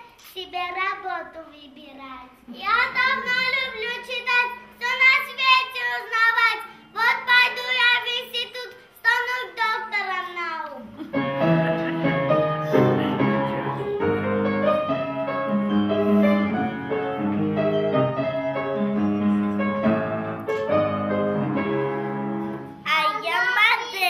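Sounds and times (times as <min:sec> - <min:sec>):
keyboard melody: 0:11.0 - 0:22.8.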